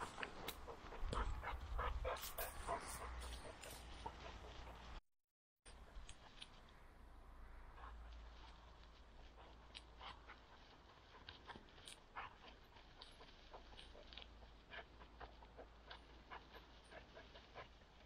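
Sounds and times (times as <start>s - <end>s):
dry weed stalks crackling: 2.1s - 5.0s, 7.5s - 18.0s.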